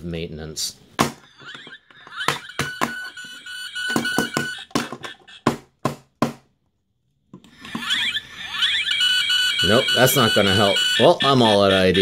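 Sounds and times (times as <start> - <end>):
plastic toy knocking on wooden desk: 3.9 - 6.4.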